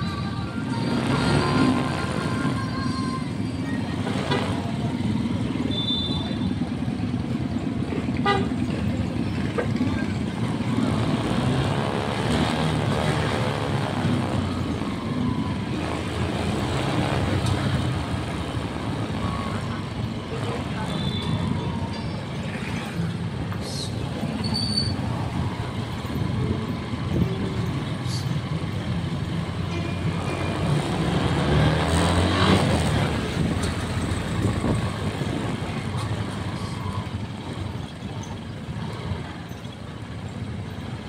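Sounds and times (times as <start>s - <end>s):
road traffic noise: 0.0s - 41.0s
motorcycle engine running: 3.8s - 27.9s.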